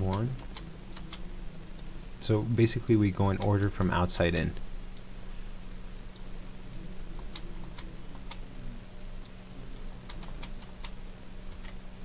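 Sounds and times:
low electrical hum: 0:00.0 - 0:12.0
mouse and keyboard clicks: 0:10.1 - 0:11.8.

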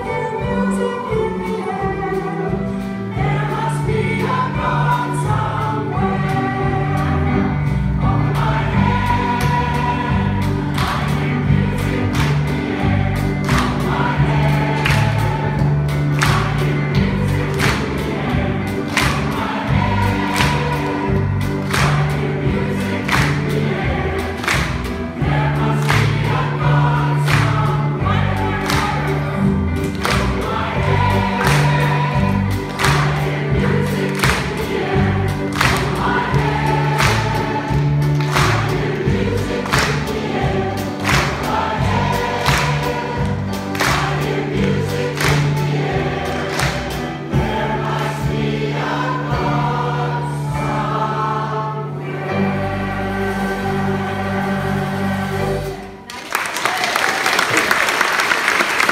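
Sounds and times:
mixed choir singing: 0:00.0 - 0:56.1
instrumental accompaniment: 0:00.0 - 0:56.2
hands clapping on the beat: 0:08.4 - 0:48.6, 0:56.1 - 0:58.9.

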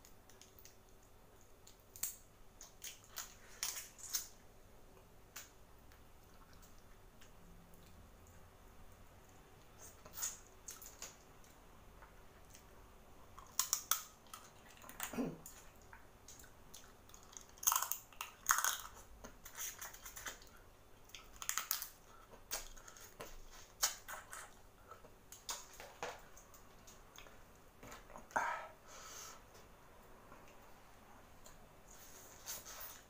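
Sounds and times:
sucking and chewing seafood: 0:09.2 - 0:25.6.

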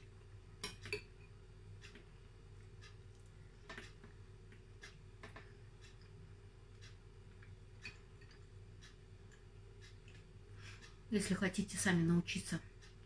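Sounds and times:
low steady hum: 0:00.0 - 0:13.0
chewing: 0:09.3 - 0:10.3.

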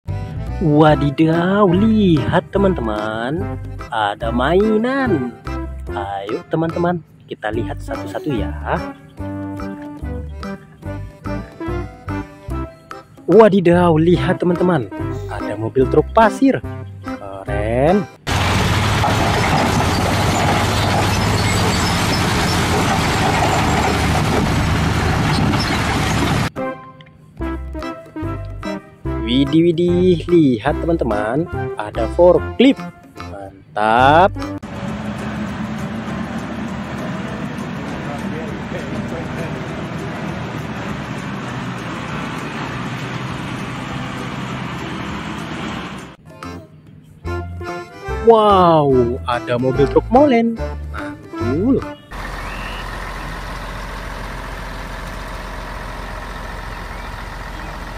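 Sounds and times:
diesel truck engines droning: 0:00.1 - 0:48.3, 0:48.9 - 0:57.9
forklift diesel engine running: 0:18.2 - 0:26.5, 0:34.6 - 0:46.2, 0:52.0 - 0:57.9
rock and dirt pouring: 0:18.3 - 0:26.5.

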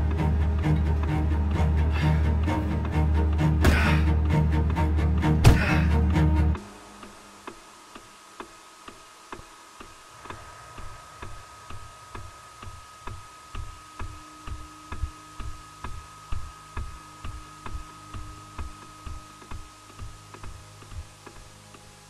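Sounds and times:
steady ticking: 0:07.0 - 0:21.8
low dull thumps: 0:09.4 - 0:21.6.

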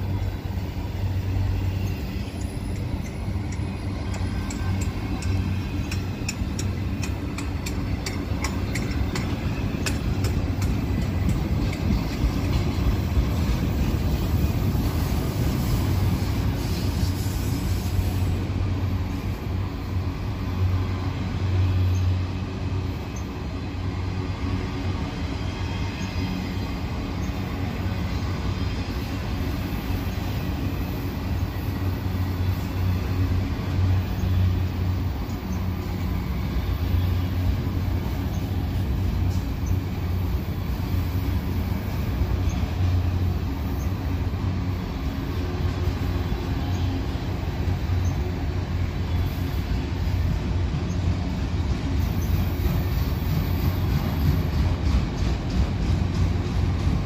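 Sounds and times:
freight train rumbling past: 0:00.0 - 0:57.0.

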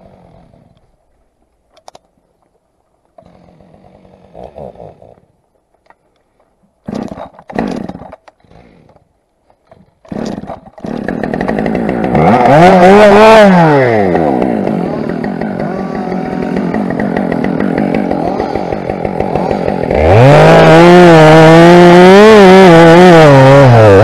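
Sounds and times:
chainsaw idling and revving: 0:06.8 - 0:09.0, 0:10.0 - 0:24.0.

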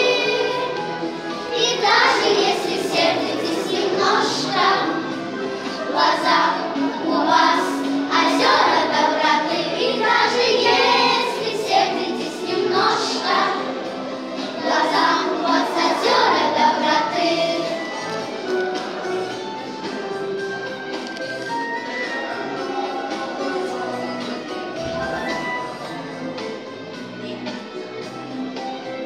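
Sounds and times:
children singing in unison: 0:00.0 - 0:18.4.

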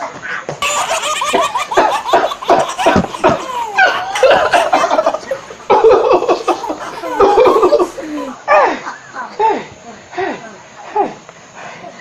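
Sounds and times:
children laughing: 0:00.6 - 0:09.8.

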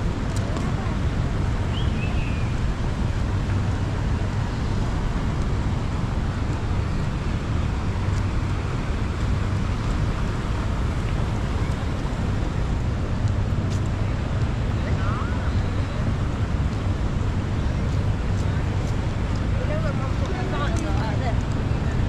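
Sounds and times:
low outdoor rumble: 0:00.0 - 0:22.0.

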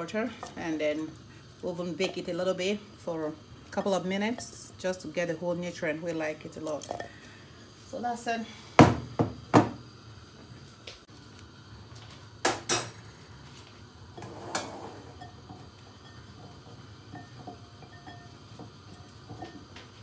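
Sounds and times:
metal pots and pans clanking: 0:14.2 - 0:19.8.

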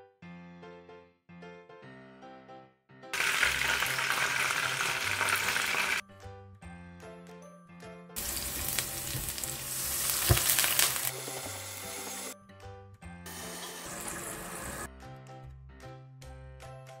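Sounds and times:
background music: 0:00.0 - 0:17.0
garlic sizzling in hot oil: 0:03.2 - 0:06.0, 0:08.2 - 0:12.4, 0:13.3 - 0:14.9.

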